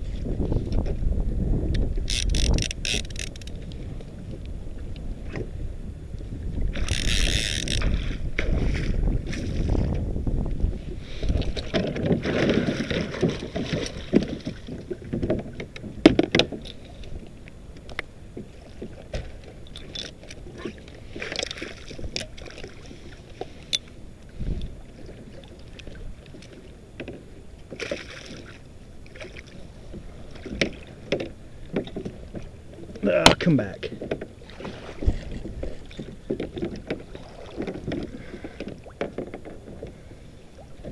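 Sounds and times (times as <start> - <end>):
water splashing against kayak hull: 0.0 - 40.9
clicks and knocks from boat: 0.1 - 1.1, 1.7 - 5.6, 6.2 - 40.9.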